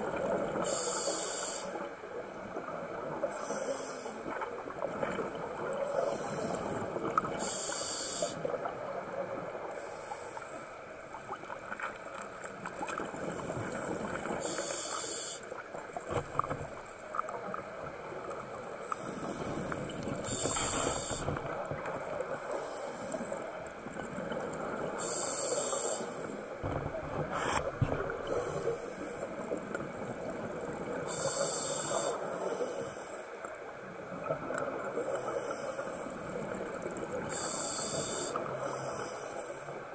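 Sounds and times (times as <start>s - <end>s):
steady underwater rushing noise: 0.0s - 39.9s
regulator breathing hiss: 0.6s - 1.9s, 3.3s - 4.2s, 5.9s - 8.5s, 14.4s - 15.5s, 20.2s - 21.4s, 25.0s - 26.3s, 31.1s - 33.3s, 35.0s - 36.2s, 37.3s - 39.8s.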